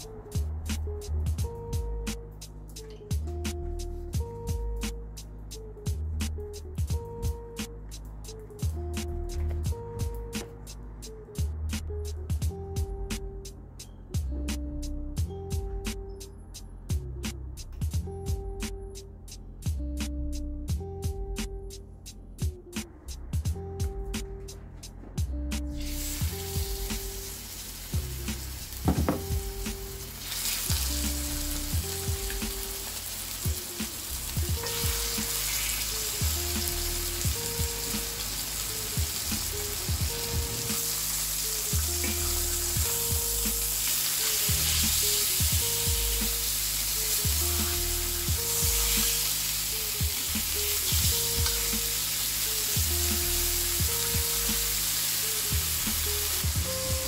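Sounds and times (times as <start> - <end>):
meat sizzling in a skillet: 25.8 - 56.6.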